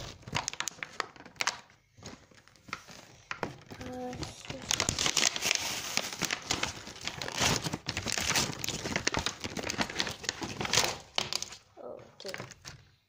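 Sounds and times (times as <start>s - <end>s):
packaging being torn open: 4.0s - 11.6s.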